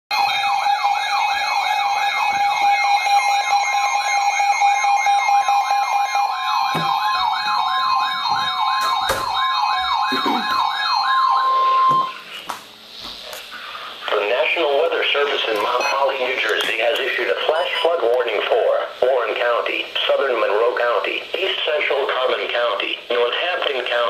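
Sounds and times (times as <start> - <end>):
fast warbling siren: 0.1 - 12.3
steady alarm tone: 0.1 - 12.4, 14.1 - 18.1.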